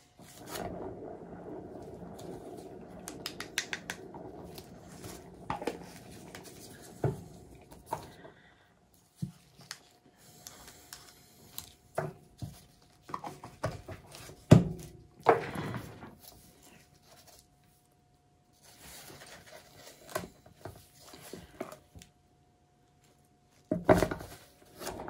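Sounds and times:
turntable rumble: 0:00.0 - 0:09.0.

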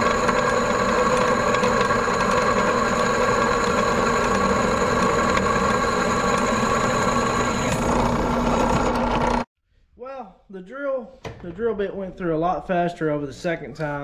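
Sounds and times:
drill press cutting steel: 0:00.0 - 0:09.5.

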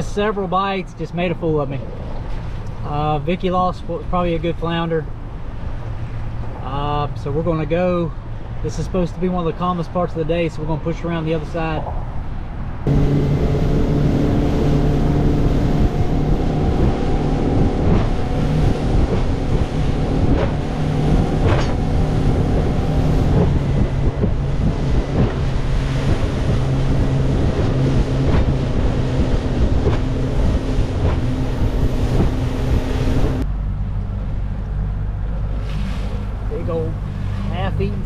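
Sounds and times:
wind buffeting microphone: 0:11.9 - 0:38.0
hull knocking on water: 0:12.9 - 0:33.4
boat engine running: 0:12.9 - 0:38.0.

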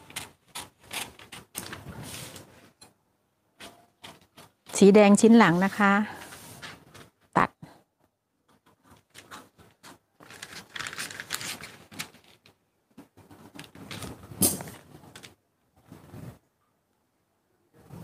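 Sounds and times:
paper rustling and crackling: 0:00.0 - 0:02.8, 0:08.5 - 0:16.4.

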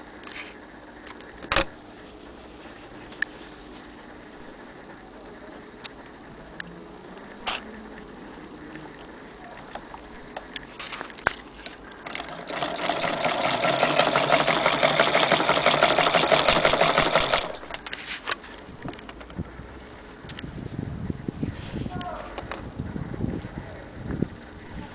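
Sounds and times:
sewing machine clattering: 0:12.0 - 0:17.9.

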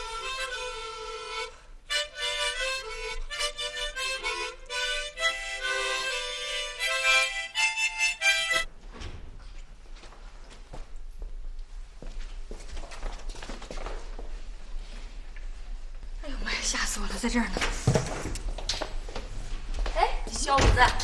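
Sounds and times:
children playing harmonicas: 0:00.0 - 0:08.7.

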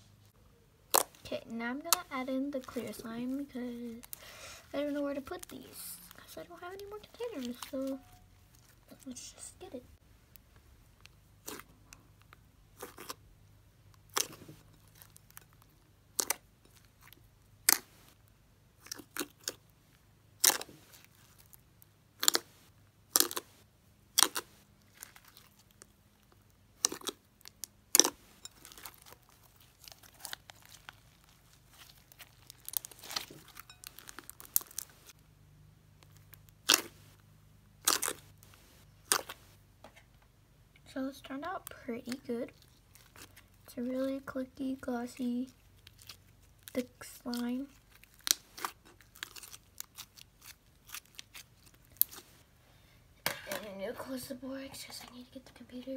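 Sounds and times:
slime popping and crackling: 0:00.9 - 0:04.2, 0:04.8 - 0:09.8, 0:14.0 - 0:18.2, 0:20.4 - 0:21.6, 0:22.2 - 0:23.5, 0:24.1 - 0:35.2, 0:36.0 - 0:37.1, 0:37.8 - 0:39.4, 0:45.1 - 0:52.4.

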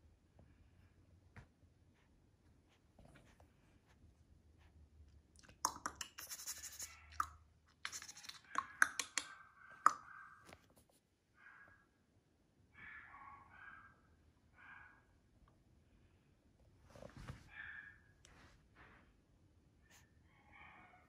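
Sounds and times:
puppy scratching at blanket: 0:01.9 - 0:04.8.

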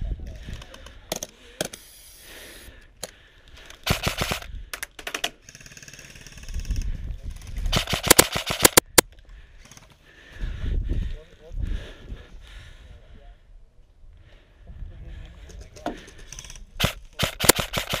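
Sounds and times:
airsoft rifle rapid shots: 0:03.8 - 0:04.5, 0:07.7 - 0:09.0, 0:16.8 - 0:18.0.

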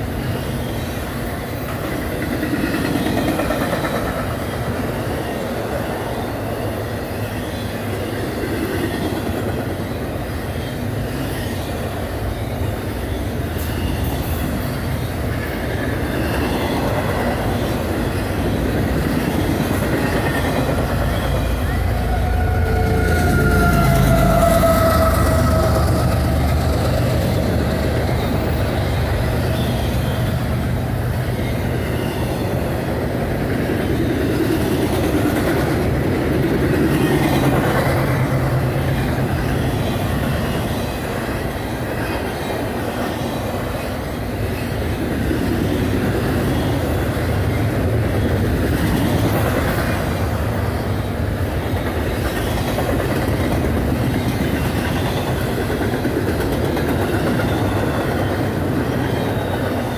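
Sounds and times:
low diesel locomotive drone: 0:00.0 - 0:59.9
freight cars rumbling past: 0:16.1 - 0:32.5.

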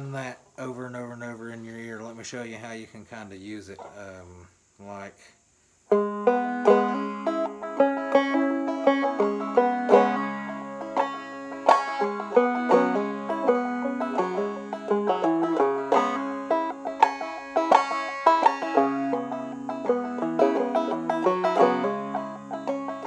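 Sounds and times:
banjo playing: 0:05.9 - 0:23.0.

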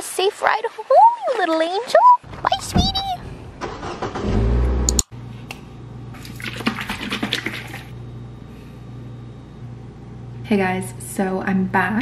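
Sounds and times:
rumbling noise: 0:02.2 - 0:04.9
low steady hum: 0:02.2 - 0:12.0.

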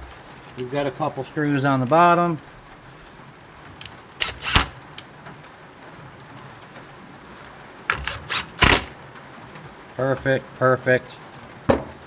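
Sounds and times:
cordless drill driving screws: 0:04.2 - 0:04.8, 0:07.9 - 0:08.9.

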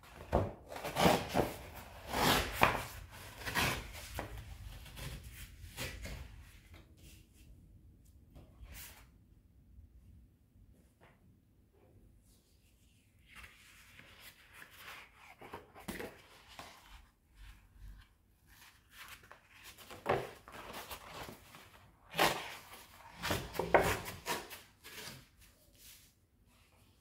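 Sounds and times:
paper folding and rustling: 0:13.1 - 0:27.0.

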